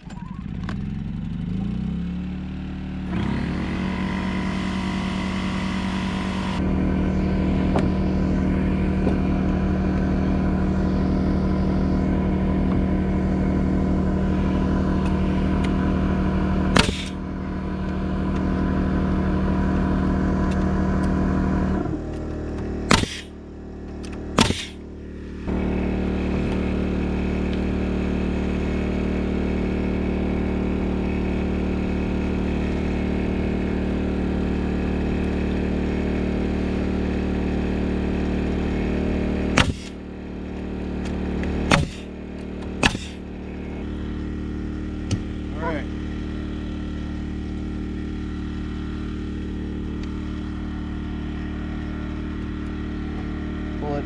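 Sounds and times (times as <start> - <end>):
generator engine running: 0.0 - 54.0
nail gun shots: 16.7 - 17.2, 22.9 - 23.3, 24.0 - 24.8, 39.6 - 40.0, 41.7 - 42.1, 42.8 - 43.2.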